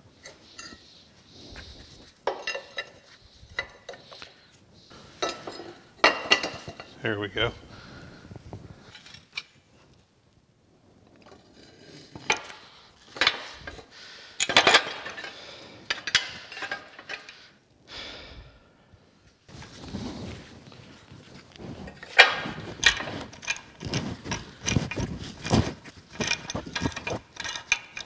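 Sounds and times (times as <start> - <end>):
heavy cast iron parts clanking: 2.2 - 4.0, 5.2 - 7.3, 21.9 - 28.0.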